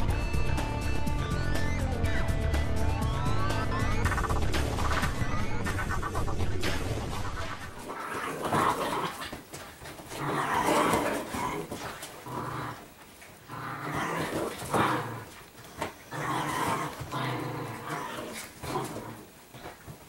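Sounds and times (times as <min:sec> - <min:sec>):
dogs growling in play: 0:07.7 - 0:20.0.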